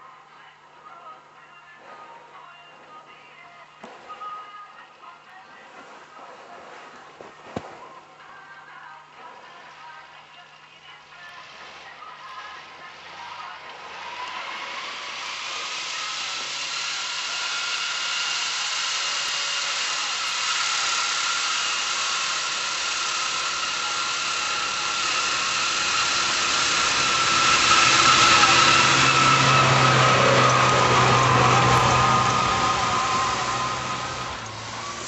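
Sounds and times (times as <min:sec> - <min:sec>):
truck engine driving through snow: 0:12.4 - 0:35.0.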